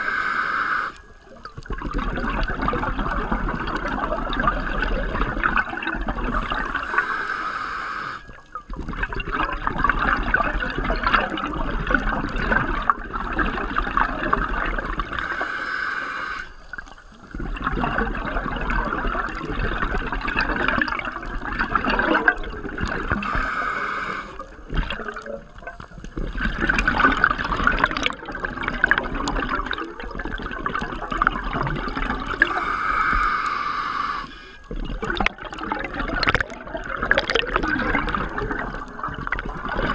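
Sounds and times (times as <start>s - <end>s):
diver breathing through regulator: 0.0s - 1.1s, 6.7s - 8.4s, 15.2s - 16.7s, 23.1s - 24.6s, 32.4s - 34.7s
bubbling exhalations: 8.1s - 39.9s.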